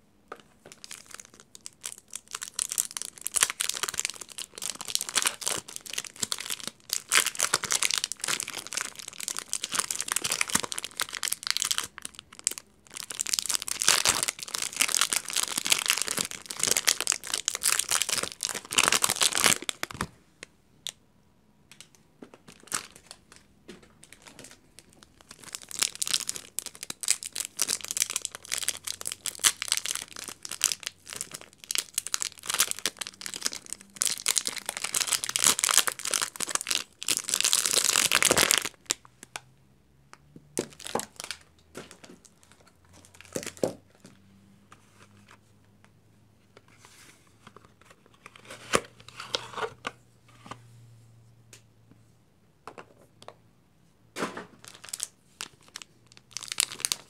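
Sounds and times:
wrappers crinkling and tearing: 0.7s - 20.1s, 24.0s - 39.0s, 54.6s - 57.0s
plastic film rustling: 22.5s - 39.0s.

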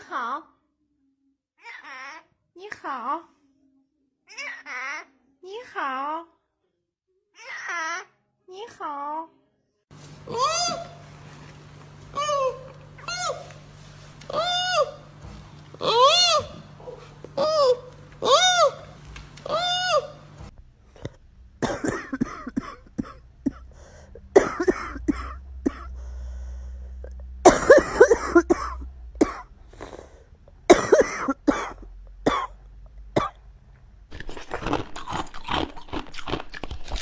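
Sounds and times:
person clearing throat: 21.6s - 26.0s, 27.0s - 30.0s, 30.7s - 32.6s
person coughing: 21.6s - 26.0s, 27.4s - 30.0s, 30.7s - 32.6s.

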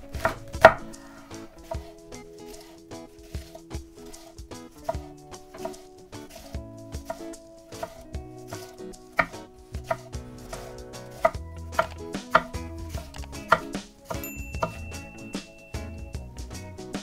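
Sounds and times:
knife slicing cabbage on board: 3.3s - 10.0s.

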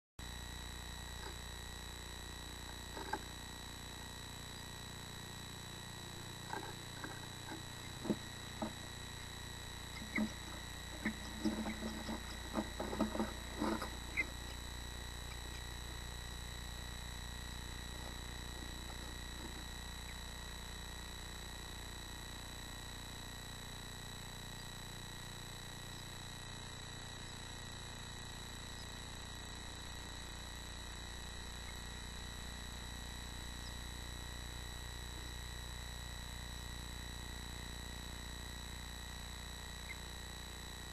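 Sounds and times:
electrical hum: 0.2s - 40.9s
birds scratching inside nest box: 6.4s - 9.2s, 9.9s - 14.7s.

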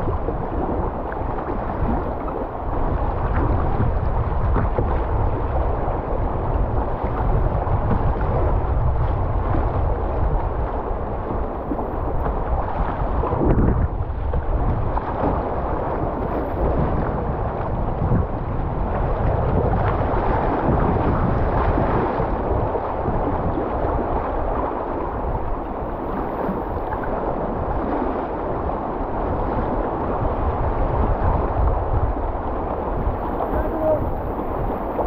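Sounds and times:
whitewater rapids rushing: 32.5s - 35.0s.

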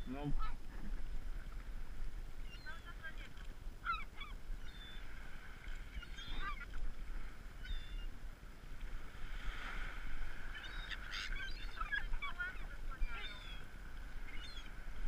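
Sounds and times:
gulls squawking: 2.4s - 5.1s, 5.9s - 6.8s, 7.6s - 8.1s, 10.4s - 14.8s.

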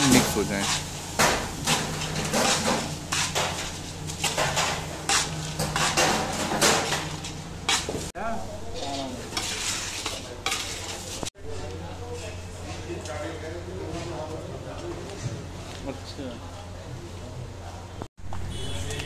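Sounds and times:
peanuts scraping in iron pan: 1.6s - 7.9s, 8.7s - 11.3s.

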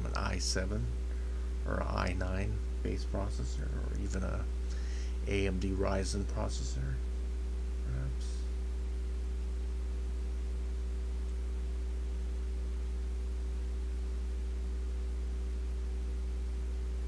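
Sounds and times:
faint hiss: 0.0s - 9.6s
low electrical hum: 0.0s - 17.0s.

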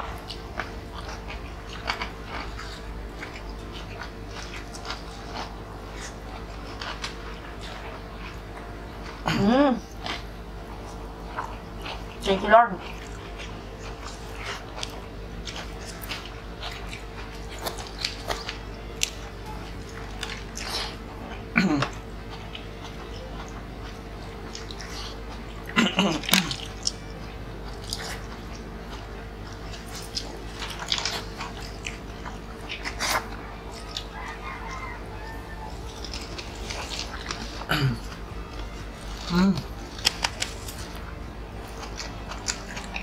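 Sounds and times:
person chewing: 0.0s - 43.0s
short hum-like vocal sound: 9.1s - 10.0s, 20.7s - 22.2s, 24.9s - 26.8s, 37.4s - 39.9s.

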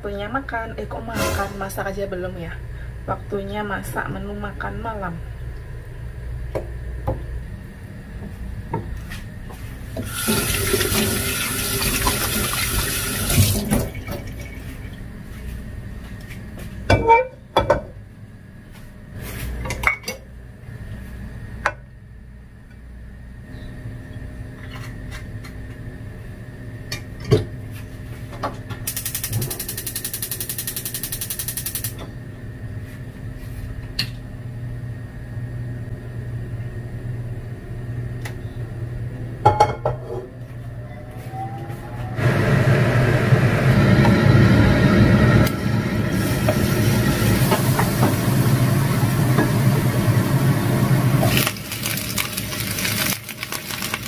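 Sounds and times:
tap water running: 10.0s - 14.6s, 46.1s - 54.0s.

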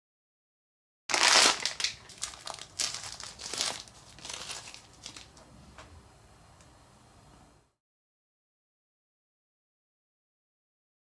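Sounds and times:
plastic wrapper crinkling: 1.1s - 5.4s.

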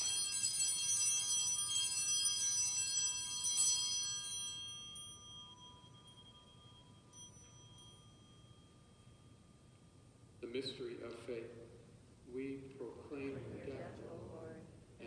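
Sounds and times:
altar bells jangling: 0.0s - 10.4s.

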